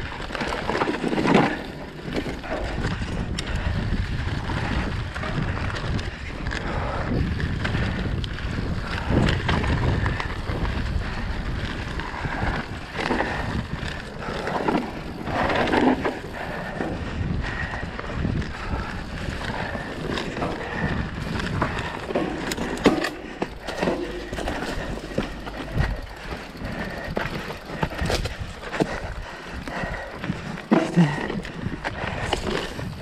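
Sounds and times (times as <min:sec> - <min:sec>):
bike knocking and rattling: 0:00.0 - 0:33.0
tyres rolling over dirt: 0:00.0 - 0:33.0
wind buffeting microphone: 0:00.0 - 0:33.0.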